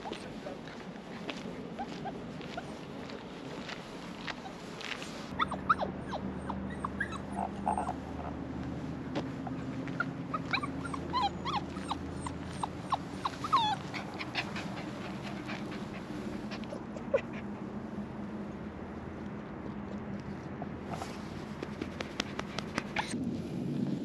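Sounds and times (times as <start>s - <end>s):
dog whining and whimpering: 5.4s - 8.0s, 10.0s - 15.7s.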